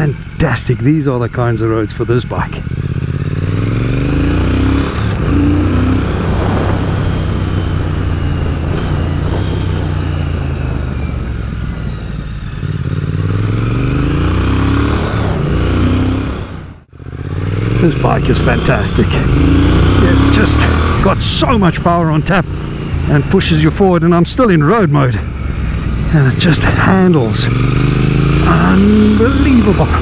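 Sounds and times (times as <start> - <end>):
motorcycle engine accelerating: 0.0 - 30.0.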